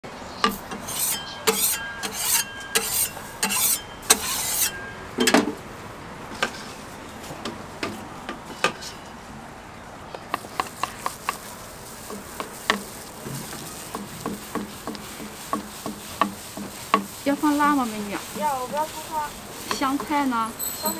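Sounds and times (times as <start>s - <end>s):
board tapping on griddle: 0.4s - 5.6s, 10.2s - 20.6s
wooden board scraping griddle: 0.4s - 5.7s, 6.3s - 9.2s, 10.3s - 20.9s.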